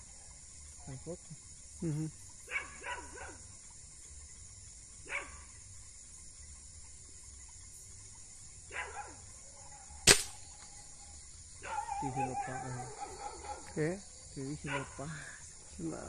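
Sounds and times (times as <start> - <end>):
dog barking: 2.5 - 3.4, 5.1 - 5.4, 8.7 - 9.2, 11.6 - 13.7, 14.6 - 15.0
gunshot: 10.1 - 10.5.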